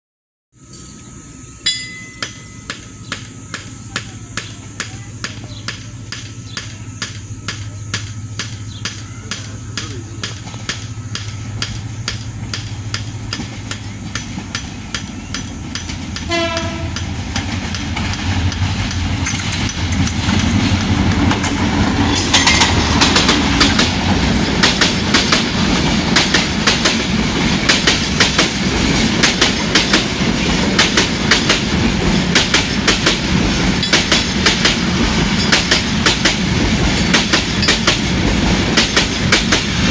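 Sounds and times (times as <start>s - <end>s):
diesel locomotive engine hum: 0.6s - 39.9s
train wheels clacking over rail joints: 2.2s - 39.9s
train horn blast: 16.2s - 17.1s.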